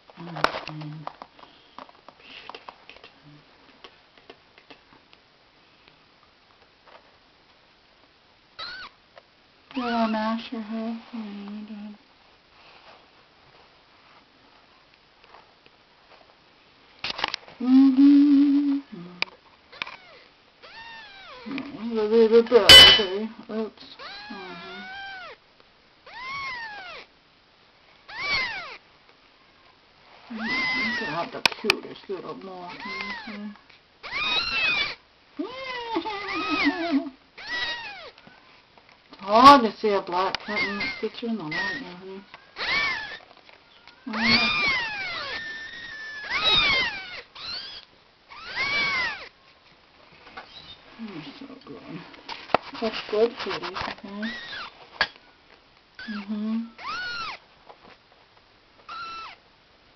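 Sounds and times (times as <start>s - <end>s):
kittens meowing: 8.6s - 8.9s, 26.1s - 27.1s, 28.1s - 28.8s, 30.4s - 31.4s, 32.7s - 38.2s, 40.4s - 43.3s, 44.0s - 49.3s, 56.0s - 57.4s, 58.9s - 59.4s.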